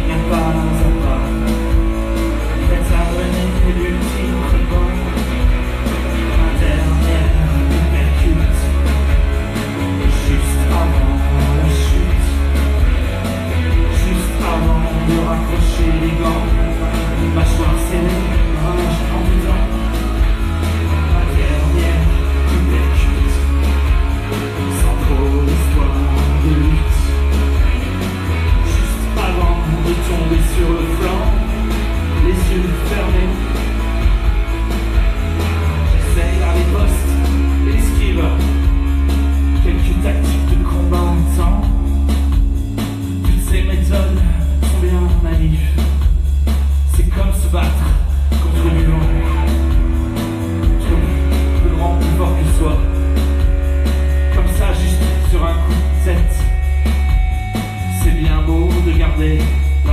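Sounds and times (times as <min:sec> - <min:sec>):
electric guitar: 0:00.0 - 0:47.0, 0:47.9 - 0:59.9
live rock band playing: 0:00.0 - 0:59.9.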